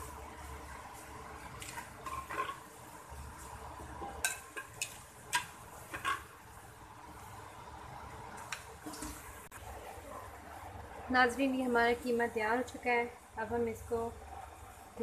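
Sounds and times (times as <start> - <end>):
spoon scraping clay pot: 1.6 - 2.7, 4.2 - 6.3
spoon clinking on pot and plate: 4.2 - 6.3.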